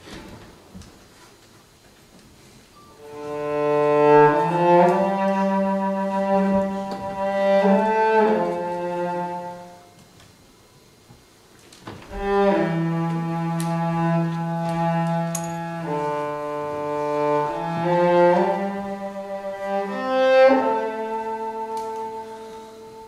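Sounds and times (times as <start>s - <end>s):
bowed cello: 3.0s - 9.9s, 12.1s - 23.0s
saxophone holding long notes: 3.0s - 10.0s, 12.1s - 23.0s.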